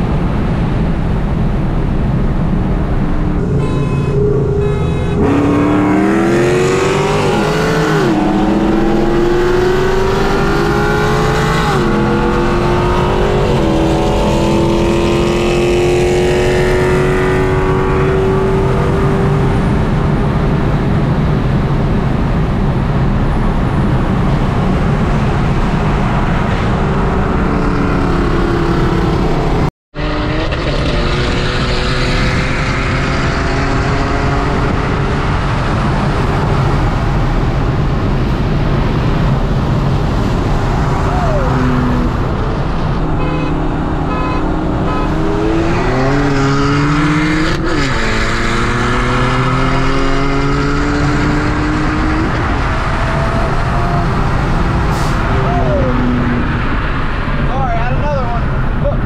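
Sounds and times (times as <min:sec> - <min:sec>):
car engine accelerating: 0:01.6 - 0:59.0.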